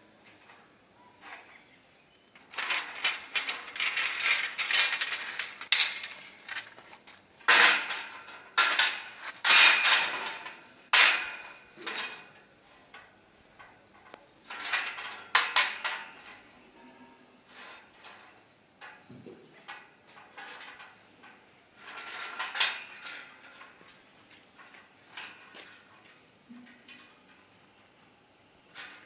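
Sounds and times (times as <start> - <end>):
steel bars clanking and scraping: 2.4 - 19.0, 19.6 - 27.5, 28.7 - 29.0.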